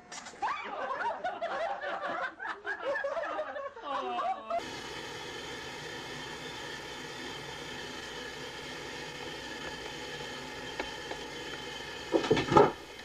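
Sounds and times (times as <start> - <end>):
steady mechanical hum: 4.6 - 13.0.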